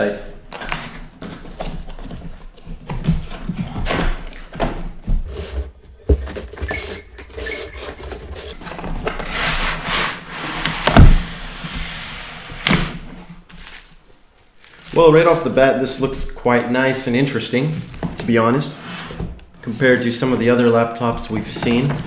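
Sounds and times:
loud thump: 10.8 - 11.3
cardboard flaps scraping: 17.8 - 22.0.

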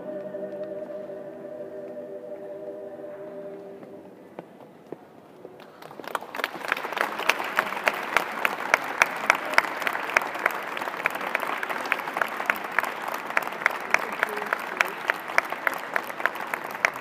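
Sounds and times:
audience applause: 5.6 - 17.0
loud close hand clapping: 5.6 - 17.0.

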